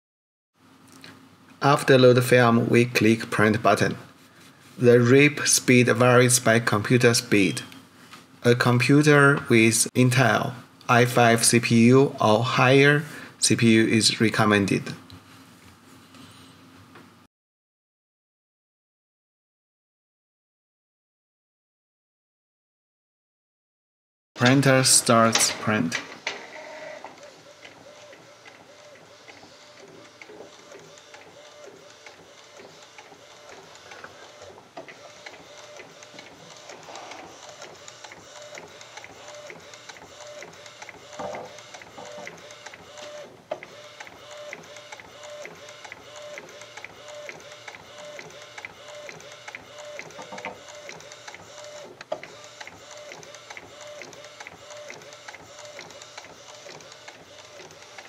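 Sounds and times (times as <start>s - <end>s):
printer carriage whirring: 24.4s - 58.0s
sharp printer click: 24.4s - 58.0s.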